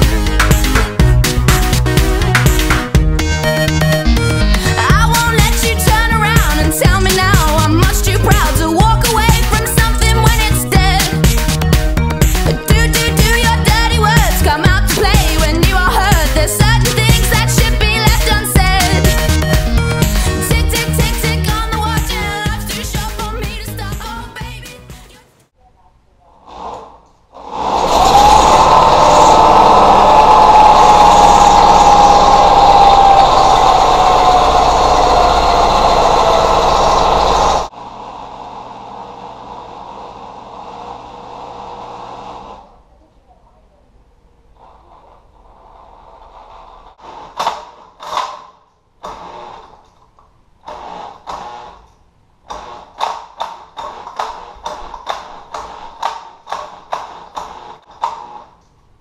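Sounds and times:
small engine starting and running: 27.8 - 42.7, 49.0 - 50.0, 50.6 - 51.9.

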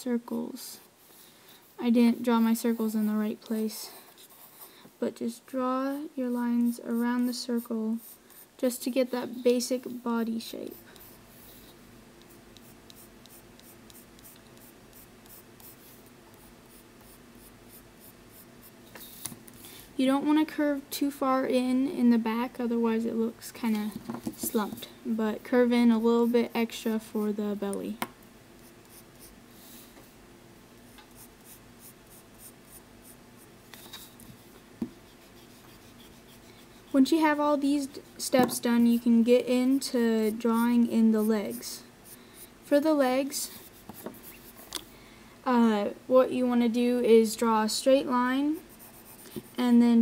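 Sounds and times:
pencil sketching on paper: 5.9 - 18.7, 31.1 - 33.2, 34.4 - 42.2, 48.6 - 49.6.

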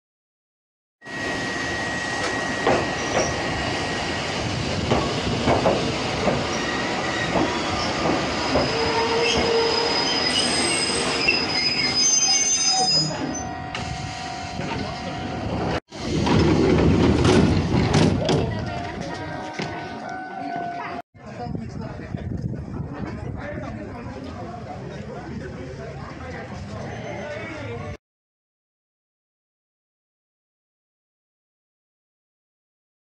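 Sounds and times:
train wheels squealing: 1.1 - 4.4, 6.4 - 14.6, 26.7 - 27.6
wheels clacking over rail joints: 4.8 - 6.6, 16.0 - 19.8.

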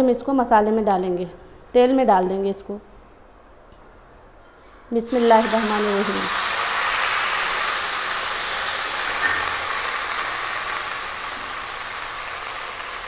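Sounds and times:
paste sizzling in hot oil: 5.0 - 13.0.

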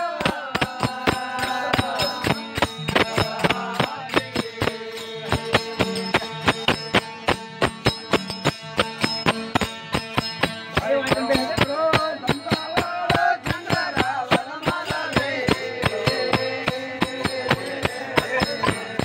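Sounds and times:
men chant-like singing: 0.0 - 6.8, 11.1 - 19.0
hand cymbals beating: 0.0 - 19.0
tambura and harmonium drone: 0.0 - 19.0.

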